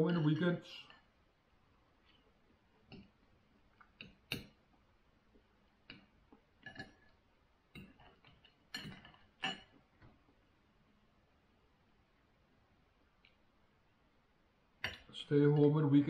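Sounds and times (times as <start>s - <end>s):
cutlery clinking on a plate: 6.6s - 7.1s, 8.7s - 9.8s, 14.8s - 15.7s.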